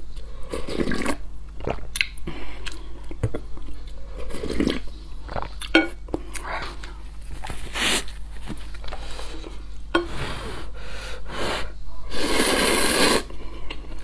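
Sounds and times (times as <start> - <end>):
person slurping noodles: 0.5 - 1.8, 11.5 - 13.3.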